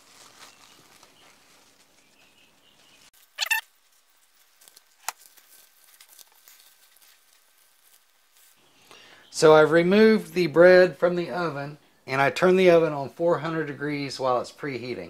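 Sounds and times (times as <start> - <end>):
cling wrap crinkling: 0.0 - 8.7
short squeak: 3.4 - 3.7.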